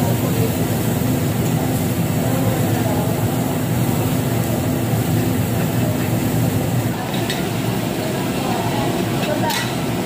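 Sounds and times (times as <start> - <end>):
restaurant background noise: 0.0 - 10.0
ventilation fans droning: 0.0 - 10.0.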